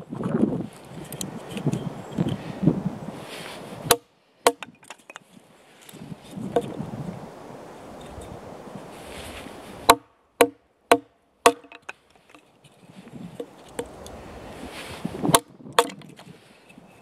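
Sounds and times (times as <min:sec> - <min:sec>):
rustle of handling wood: 0:00.0 - 0:17.0
axe chopping wood: 0:03.9 - 0:04.7, 0:09.8 - 0:12.0, 0:15.2 - 0:16.0
wood knocking: 0:09.9 - 0:12.4.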